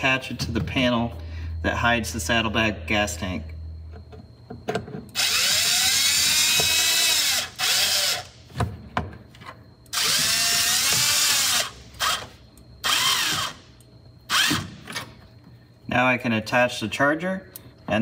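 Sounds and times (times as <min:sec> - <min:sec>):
cordless drill running: 0:05.2 - 0:08.4, 0:09.9 - 0:13.7, 0:14.3 - 0:14.6.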